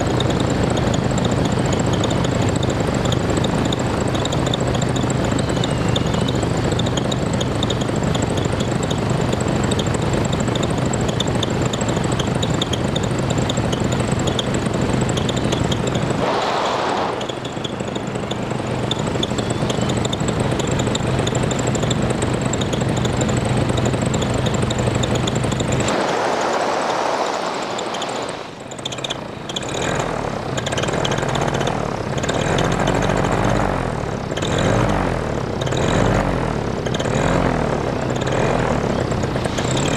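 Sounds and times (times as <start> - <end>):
small aircraft engine and propeller: 0.0 - 39.9
wind rushing: 16.2 - 17.7, 25.8 - 29.5.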